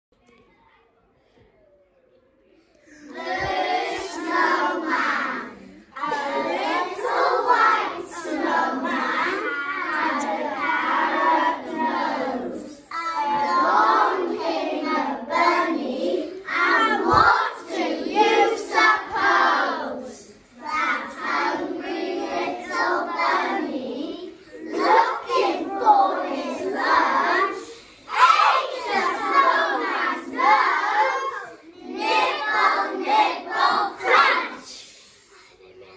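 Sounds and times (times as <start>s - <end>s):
children singing in unison: 2.9s - 35.9s.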